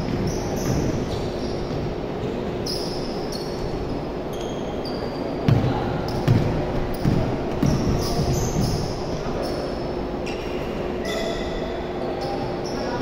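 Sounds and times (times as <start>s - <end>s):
sneakers squeaking: 0.0s - 13.0s
basketball bouncing on hardwood: 5.5s - 8.8s.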